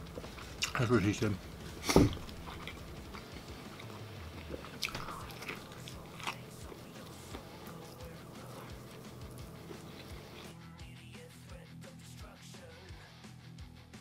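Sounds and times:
person chewing bread: 0:00.0 - 0:10.6.

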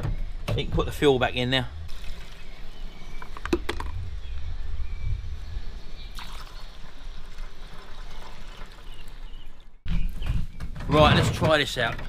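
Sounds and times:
liquid trickling into tank: 0:01.9 - 0:03.0, 0:06.1 - 0:09.8.

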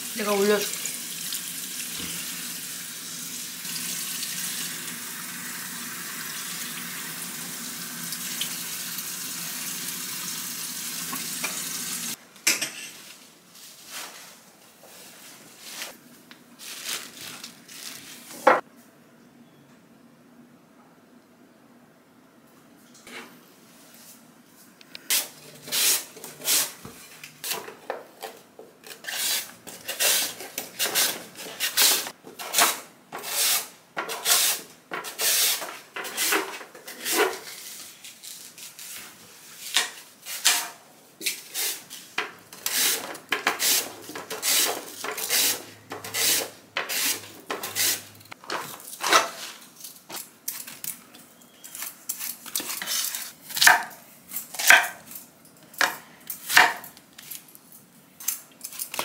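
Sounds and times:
knife peeling and cutting fruit: 0:25.1 - 0:55.1.

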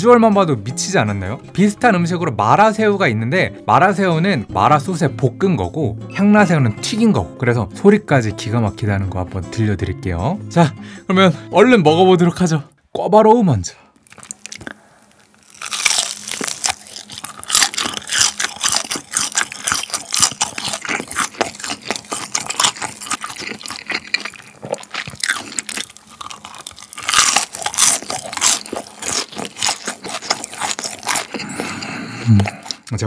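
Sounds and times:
crunching and chewing fried pork: 0:14.0 - 0:33.0.

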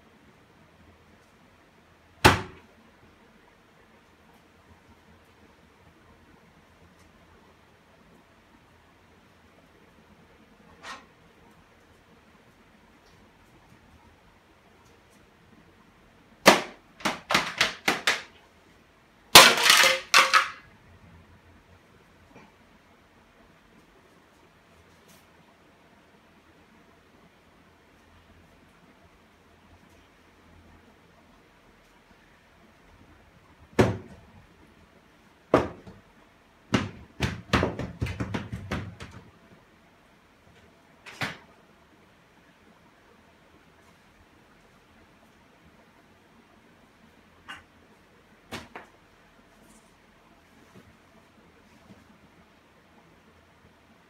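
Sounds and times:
hollow knocks on whiteboard: 0:36.7 - 0:39.2.

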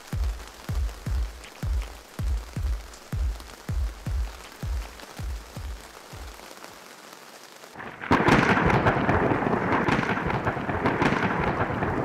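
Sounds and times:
rain hissing: 0:00.0 - 0:12.0
thunder clap and rumble: 0:07.8 - 0:12.0.

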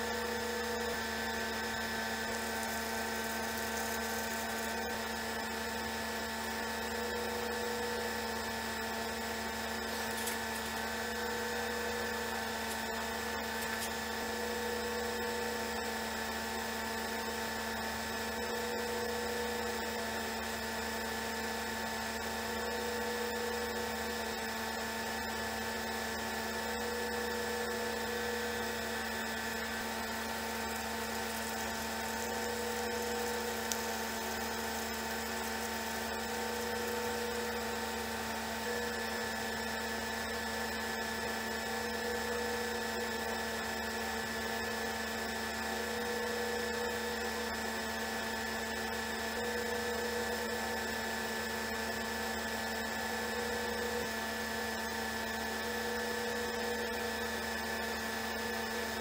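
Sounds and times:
electric motor whine: 0:00.0 - 0:59.0.

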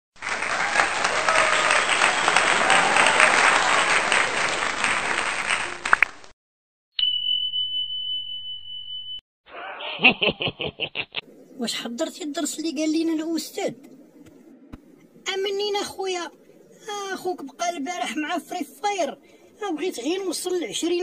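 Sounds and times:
high-pitched beep: 0:07.0 - 0:09.2
dense crackling noise: 0:11.6 - 0:21.0.

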